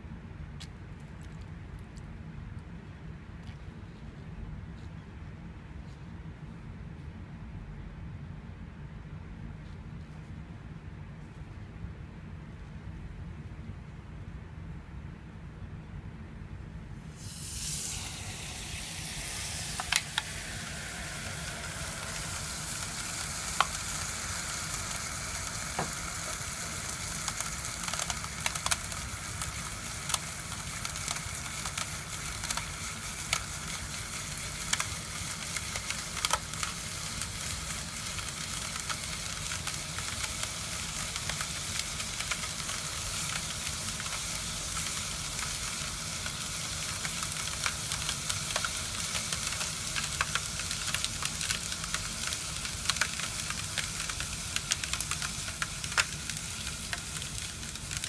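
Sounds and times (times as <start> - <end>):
liquid nitrogen sizzling hiss: 17.0 - 58.0
sharp ticks and cracks: 17.8 - 58.0.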